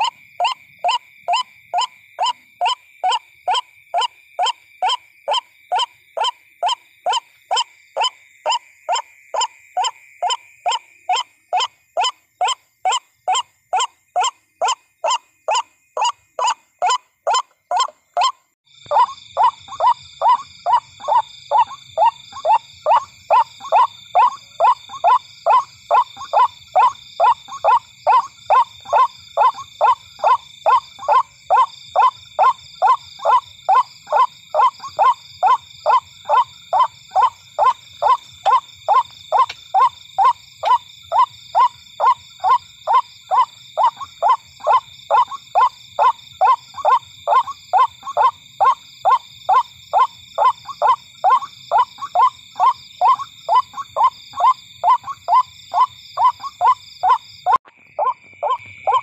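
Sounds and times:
waterhen calling: 0:09.4 - 0:59.0.

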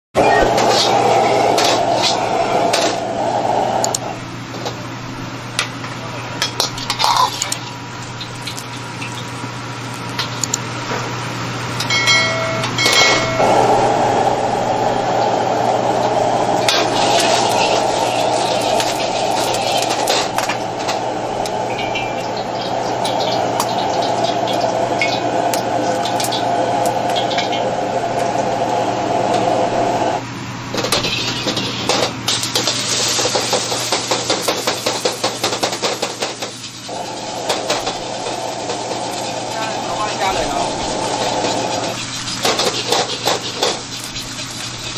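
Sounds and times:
rushing noise: 0:00.2 - 0:04.5, 0:12.4 - 0:30.3
steady hum: 0:00.2 - 0:33.3, 0:36.8 - 0:44.9
gas burner flame rushing: 0:00.2 - 0:44.9.

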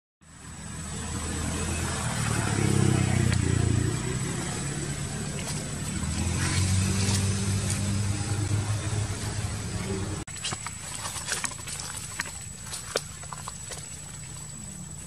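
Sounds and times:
small motorbike engine running: 0:00.3 - 0:10.3.

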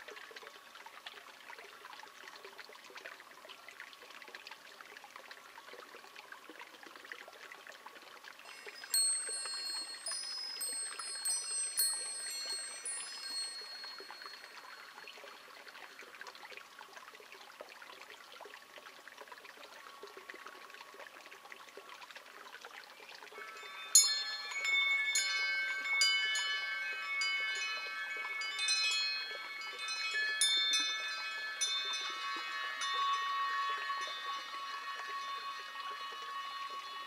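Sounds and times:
wind chimes ringing: 0:08.4 - 0:16.0, 0:23.3 - 0:37.0.

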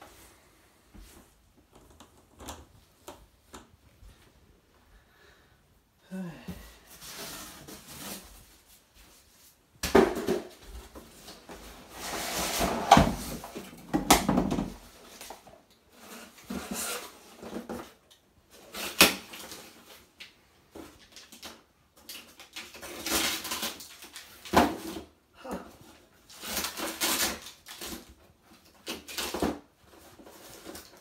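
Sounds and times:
cardboard scraping and rustling: 0:10.2 - 0:13.8.

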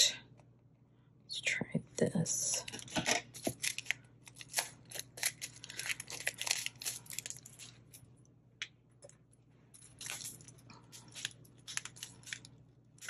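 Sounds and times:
foil packet crinkling: 0:02.6 - 0:08.0, 0:09.8 - 0:13.0.

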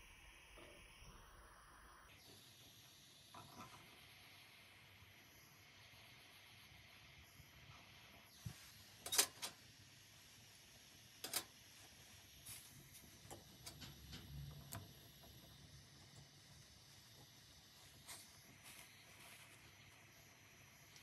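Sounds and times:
metallic clicks of tools: 0:09.0 - 0:09.6, 0:11.2 - 0:11.5
torch hissing: 0:09.8 - 0:21.0.

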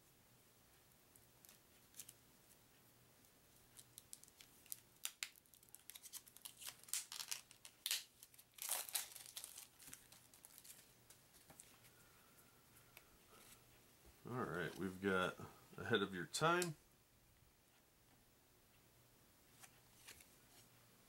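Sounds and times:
plastic wrap crinkling and tearing: 0:03.7 - 0:10.9.

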